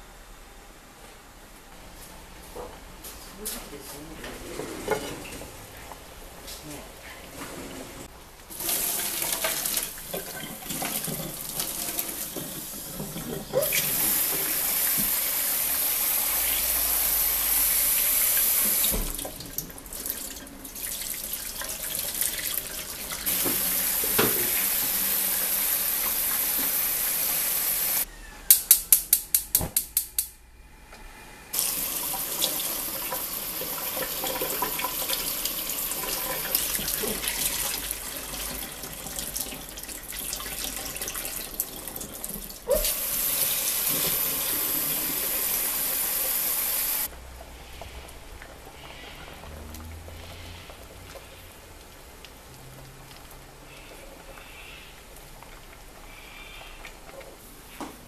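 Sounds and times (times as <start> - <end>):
water splashing into steel sink: 8.5 - 15.8, 31.6 - 46.0.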